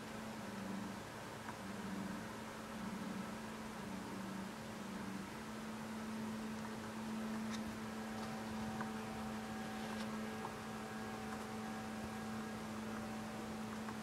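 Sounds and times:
low electrical hum: 0.0 - 14.0
soft hiss: 0.0 - 14.0
faint higher tone: 2.8 - 14.0.

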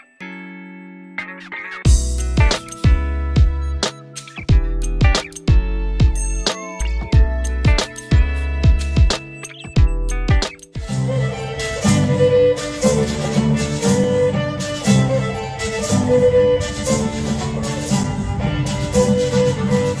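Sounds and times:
fiddle-led dance band music: 9.8 - 20.0.

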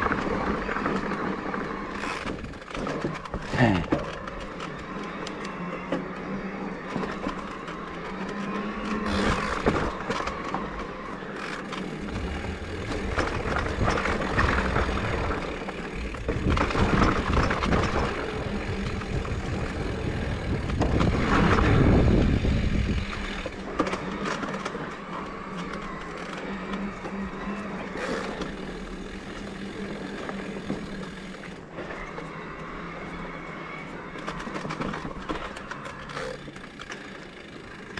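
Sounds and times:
electric motor hum: 0.0 - 37.9
tyres rumbling on wooden boardwalk: 0.0 - 37.9
tyre and wind noise: 4.2 - 31.5.

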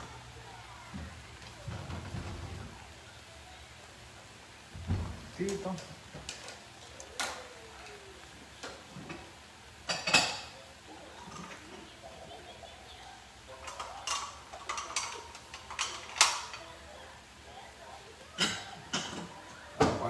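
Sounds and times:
dishes and utensils clattering: 8.6 - 17.0, 18.2 - 20.0.

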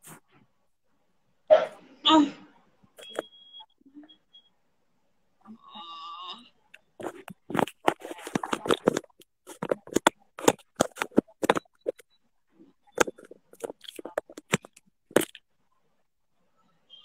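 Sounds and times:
phone being handled: 3.0 - 3.2, 7.0 - 12.0, 12.9 - 15.4.

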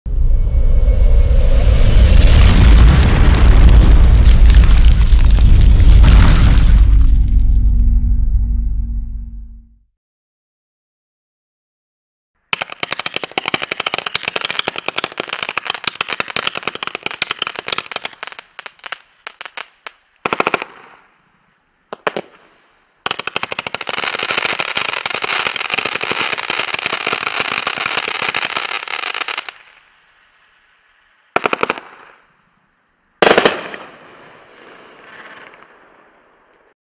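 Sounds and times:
firework crackle: 1.4 - 7.6, 12.5 - 36.8
loud firework bursts: 2.2 - 7.2, 12.5 - 21.2, 21.9 - 29.9, 31.3 - 32.4, 33.2 - 36.7.

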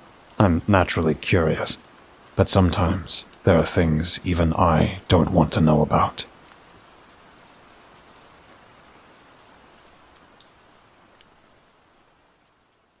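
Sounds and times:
steady rain falling: 0.0 - 13.0.

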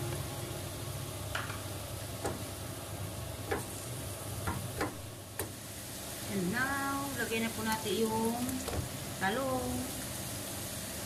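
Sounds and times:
meat and onions sizzling in a pan: 0.0 - 11.0
wooden spatula knocking on pan: 3.5 - 3.7, 4.4 - 5.5.

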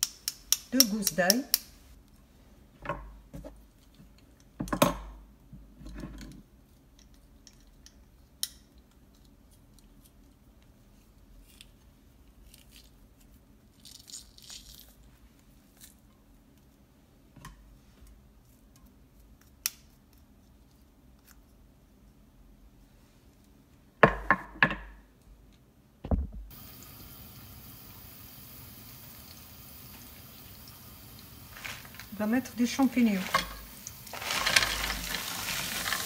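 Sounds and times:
crackly rustles of garlic peeling: 8.8 - 16.9, 29.9 - 36.0.

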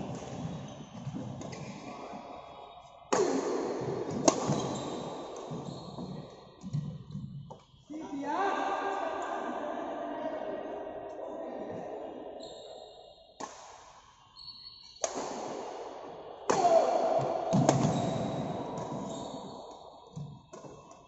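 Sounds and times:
racket hitting shuttlecock: 3.1 - 7.0, 13.4 - 14.1, 15.0 - 15.9, 16.5 - 21.0.

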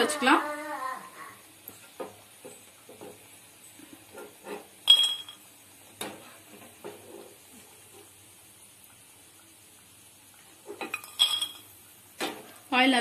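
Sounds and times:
skimmer scraping frying pan: 3.8 - 5.4, 6.0 - 8.2
sharp ringing metal clink: 4.9 - 5.4.

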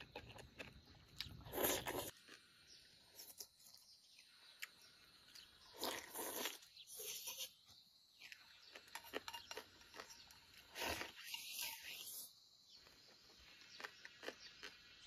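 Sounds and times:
person chewing: 0.0 - 2.5, 3.1 - 7.2, 8.2 - 12.0, 12.8 - 15.0
person slurping: 1.3 - 2.2, 5.7 - 7.6, 10.6 - 12.3.

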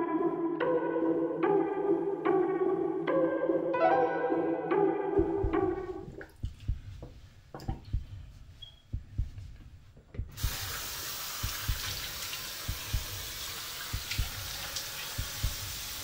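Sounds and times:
low heartbeat-like thuds: 5.2 - 16.0
water running into a sink: 10.4 - 16.0.

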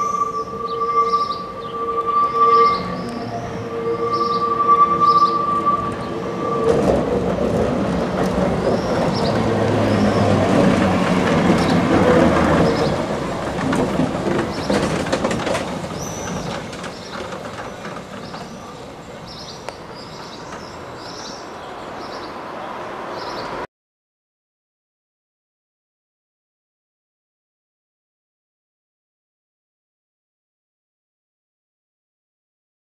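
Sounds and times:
tram wheel squeal: 0.0 - 22.4
tram motor hum and rolling wheels: 0.0 - 23.6
wheels clacking over rail joints: 4.5 - 22.2.

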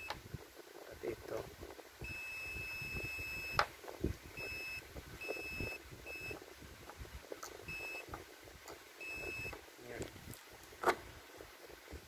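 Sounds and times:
multimeter beeps: 2.0 - 3.6, 4.4 - 6.4, 7.7 - 8.1, 9.0 - 9.6.

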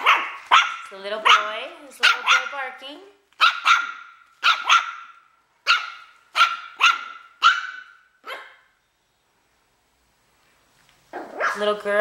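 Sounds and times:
puppy barking high-pitched: 0.0 - 2.7, 3.4 - 8.7, 11.1 - 11.7.

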